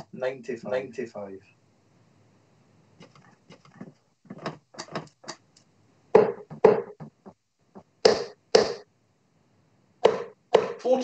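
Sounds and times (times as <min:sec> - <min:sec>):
darts striking dartboard: 0:08.1 - 0:08.8, 0:10.0 - 0:10.8.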